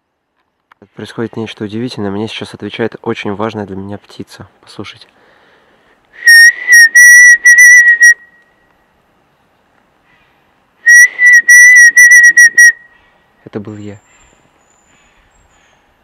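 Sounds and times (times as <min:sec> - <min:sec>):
man whistling bird call: 0:06.2 - 0:08.7, 0:10.8 - 0:13.0.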